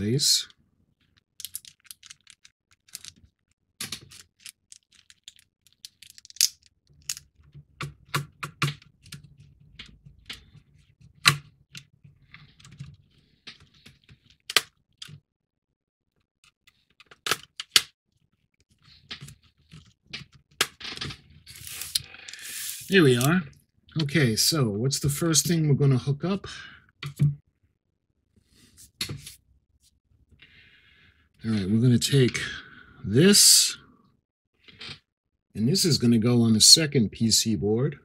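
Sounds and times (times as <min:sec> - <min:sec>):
clicks of small plastic parts: 0:01.4 - 0:07.3.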